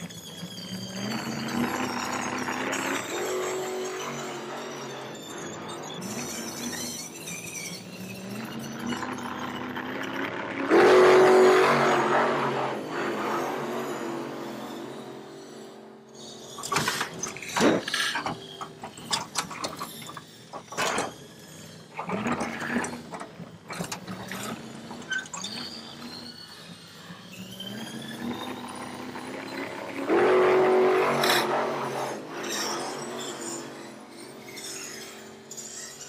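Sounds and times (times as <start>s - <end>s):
toy car electric motor whining: 0.0s - 36.0s.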